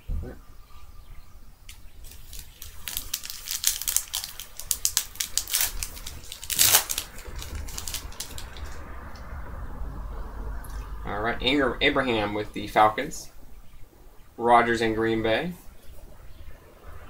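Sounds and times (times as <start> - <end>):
foil wrapper crinkling and tearing: 1.7 - 8.8.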